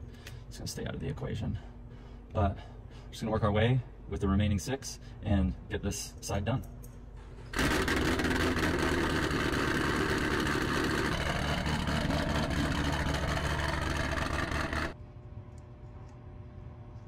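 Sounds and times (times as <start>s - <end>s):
heat gun fan blowing: 7.5s - 15.0s.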